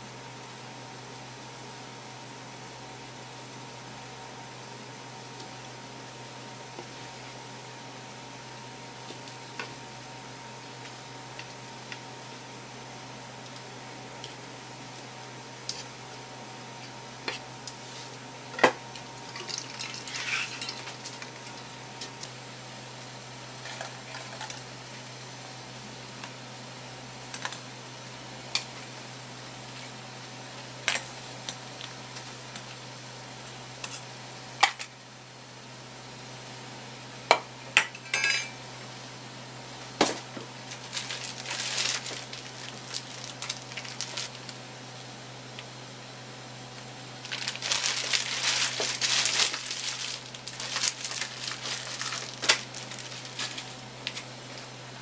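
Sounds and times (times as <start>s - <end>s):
low steady hum: 0.0s - 55.0s
utensils clinking on metal pot: 37.8s - 38.6s.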